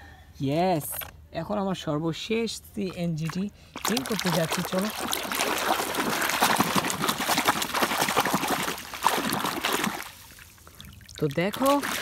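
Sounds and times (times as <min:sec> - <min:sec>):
water splashing and sloshing: 0:02.8 - 0:12.0.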